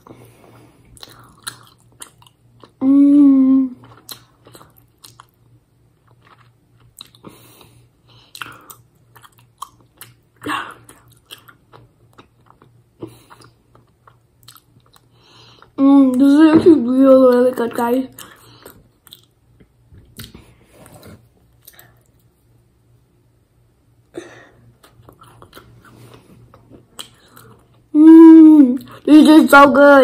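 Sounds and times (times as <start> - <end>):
person chewing sweet: 0.9 - 2.8, 3.8 - 15.8, 18.1 - 19.4, 24.8 - 27.9
person humming mmm: 2.8 - 4.0, 27.9 - 29.0.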